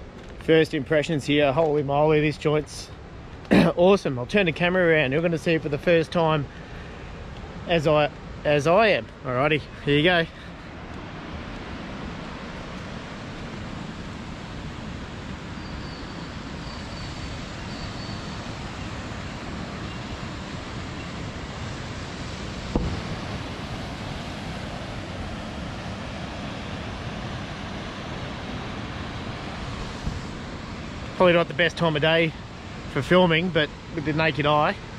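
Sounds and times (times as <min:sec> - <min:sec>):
sharp knock: 0:22.7 - 0:23.1.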